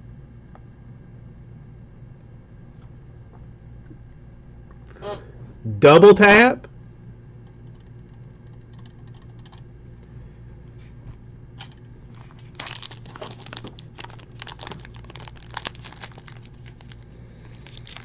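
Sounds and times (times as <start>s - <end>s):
low steady hum: 0.0s - 18.0s
foil wrapper crinkling and tearing: 12.1s - 18.0s.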